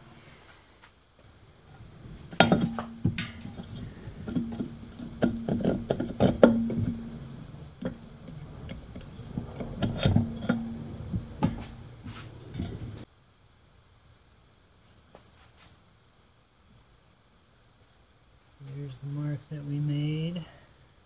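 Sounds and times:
metal clinks and knocks: 2.2s - 13.0s.

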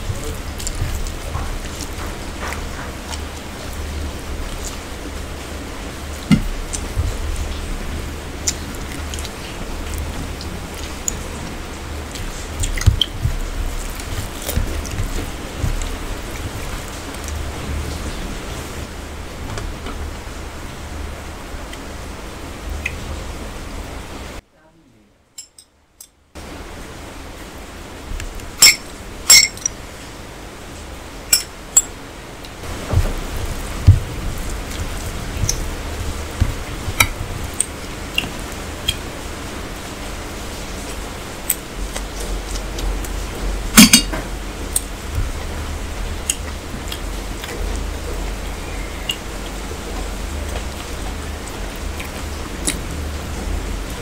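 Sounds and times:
fingers mixing rice on plates: 0.0s - 18.6s, 31.3s - 54.0s
mouths chewing: 0.0s - 19.1s, 32.4s - 54.0s
steady low hum: 0.0s - 54.0s
clinks against steel plates: 25.4s - 25.7s, 28.6s - 29.7s, 43.8s - 44.2s.

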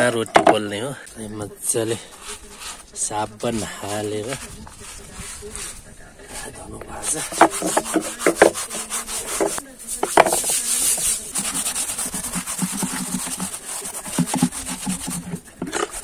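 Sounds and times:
steel wool scrubbing wet stone: 0.0s - 16.0s
water running from spout: 7.0s - 16.0s.

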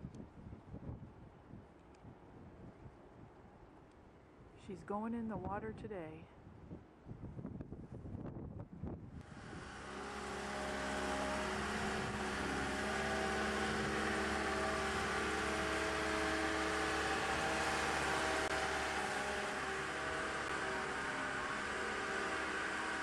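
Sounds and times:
boat hoist engine humming: 9.2s - 23.0s.

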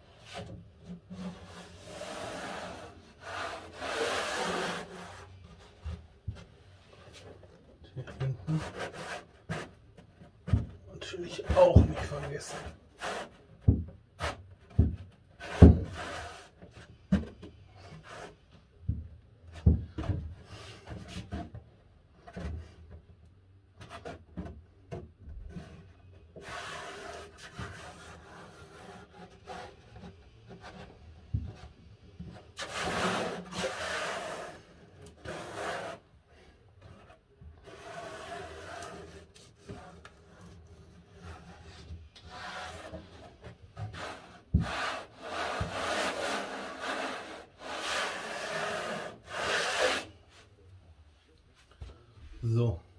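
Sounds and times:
hands rubbing cork sheet: 43.9s - 50.4s.

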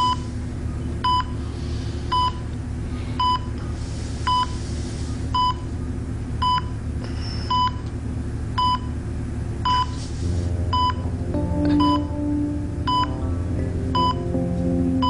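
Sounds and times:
low steady hum: 0.0s - 15.0s
patient monitor beeping: 1.0s - 1.4s, 2.1s - 2.4s, 3.2s - 3.6s, 4.3s - 4.6s, 5.4s - 5.6s, 7.5s - 7.8s, 9.6s - 10.0s, 10.7s - 13.2s, 13.9s - 14.7s
soft music: 10.3s - 15.0s.

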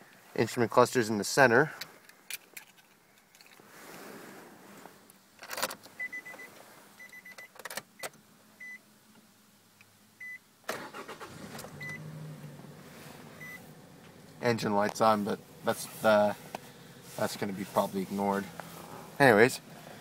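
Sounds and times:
car engine starting and idling: 10.6s - 20.0s.

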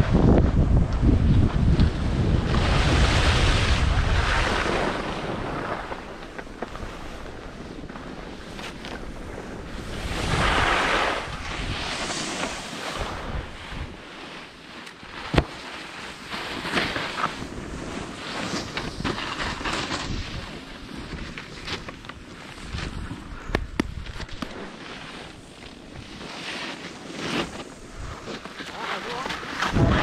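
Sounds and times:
wind buffeting microphone: 0.0s - 14.1s, 22.6s - 26.2s, 29.0s - 30.0s
edges scraping over snow: 1.5s - 30.0s.

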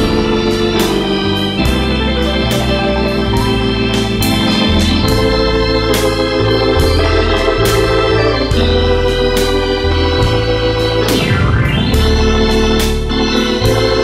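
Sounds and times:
bass line: 0.0s - 14.0s
organ chords: 0.0s - 14.0s
steady beat: 0.0s - 14.0s.

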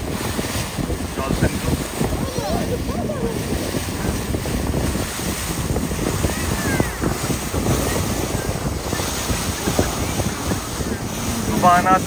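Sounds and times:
boat running noise: 0.0s - 12.0s
water rushing around hull: 0.0s - 12.0s
wind buffeting microphone: 0.0s - 12.0s.

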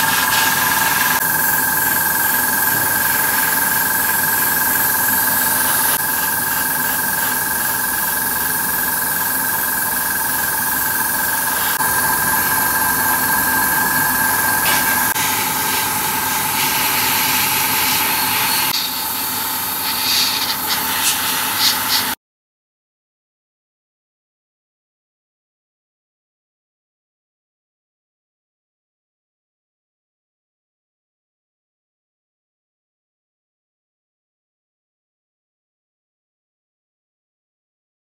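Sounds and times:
airbrush spraying hiss: 0.0s - 9.4s, 10.0s - 22.2s
air compressor whine: 0.0s - 22.2s.

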